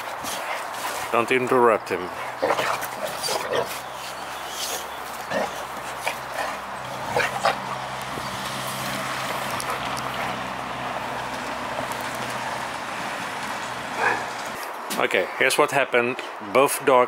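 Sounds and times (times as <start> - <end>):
dogs sniffing: 0.0 - 14.7.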